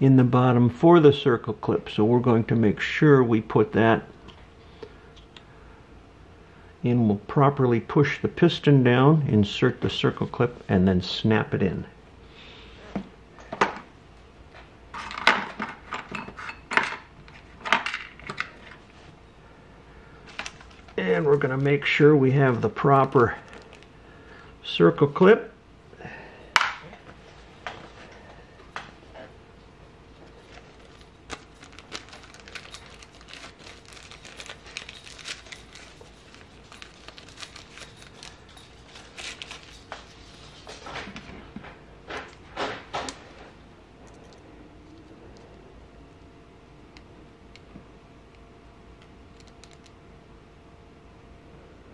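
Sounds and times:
plastic bags crinkling: 23.0s - 24.0s, 30.4s - 41.1s
metal tools clinking: 30.2s - 41.1s.

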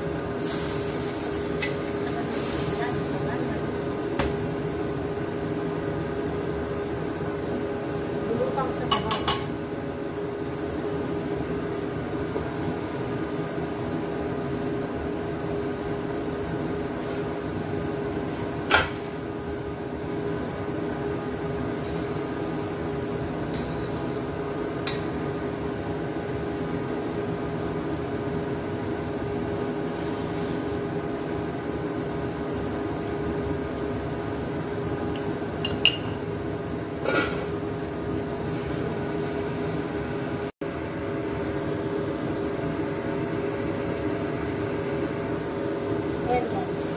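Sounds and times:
mechanical appliance hum: 0.0s - 46.9s.

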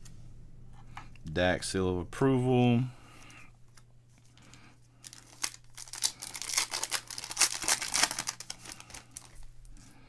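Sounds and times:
foil wrapper tearing and crinkling: 5.0s - 9.4s.

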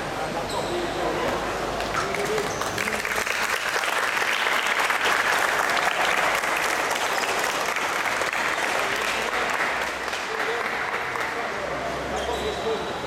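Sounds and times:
crowd clapping: 1.8s - 11.7s.

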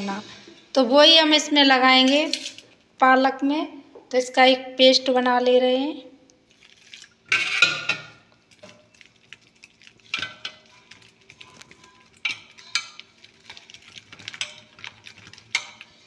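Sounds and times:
spoon stirring in steel bowl: 6.6s - 16.0s.

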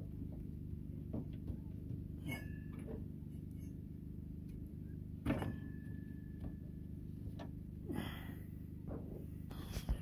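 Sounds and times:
steady low hum: 0.0s - 10.0s
metal clanks with ringing: 2.1s - 3.8s, 5.2s - 7.2s.

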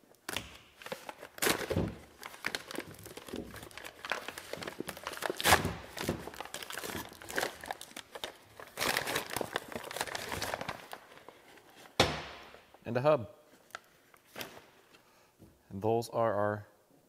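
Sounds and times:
wrapping paper crinkling: 0.5s - 12.0s.

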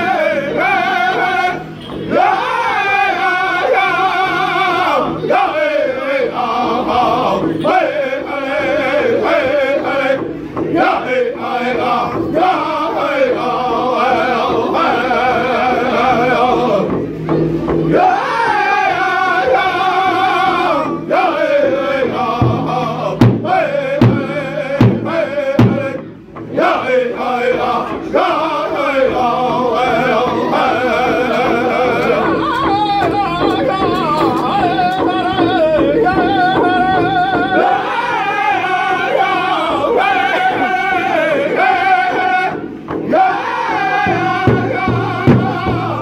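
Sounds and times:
men singing in unison: 0.0s - 17.2s, 17.8s - 46.0s
large hand drum beaten with sticks: 0.0s - 46.0s.

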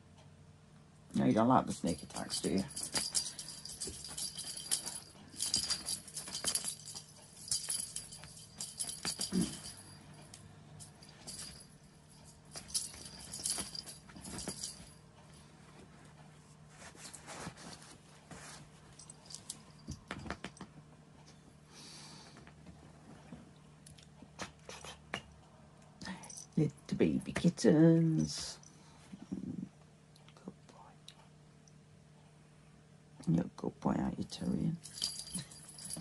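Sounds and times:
jingle bell rattling: 1.8s - 15.0s, 19.0s - 20.4s, 34.8s - 36.0s.

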